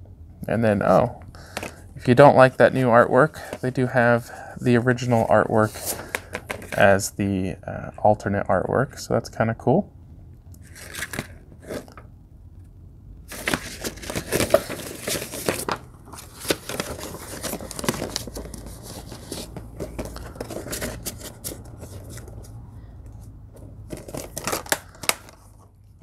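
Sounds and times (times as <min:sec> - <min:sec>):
plastic case rustling and clicking: 0:01.5 - 0:01.8, 0:06.0 - 0:06.8, 0:13.3 - 0:22.5, 0:23.6 - 0:25.7.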